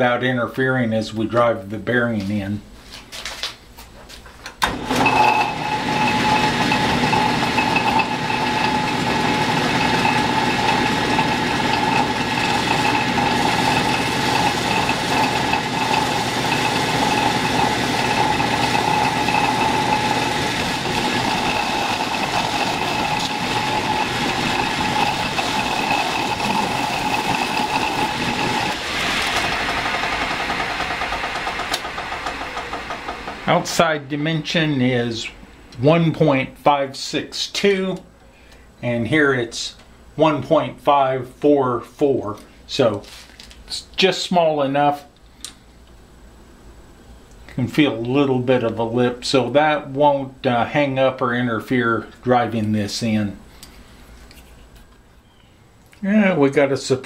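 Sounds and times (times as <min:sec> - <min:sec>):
metal lathe whining: 0:04.7 - 0:33.9.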